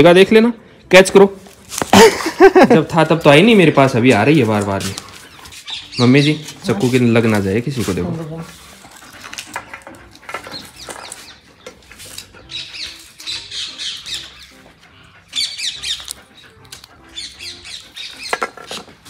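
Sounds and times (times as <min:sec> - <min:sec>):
high chirping sounds: 0:04.3 - 0:07.4, 0:10.4 - 0:18.9.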